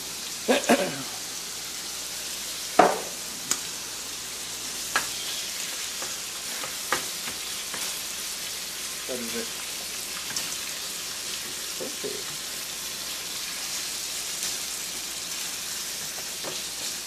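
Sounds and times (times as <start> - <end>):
chicken sizzling in pan: 0.0 - 17.0
spatula knocking on pan: 2.8 - 3.2.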